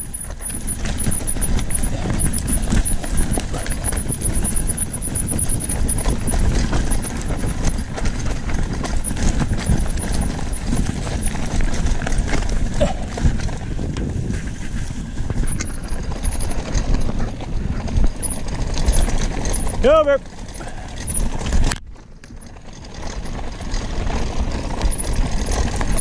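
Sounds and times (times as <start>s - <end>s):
mountain bike rattling on trail: 0.0s - 26.0s.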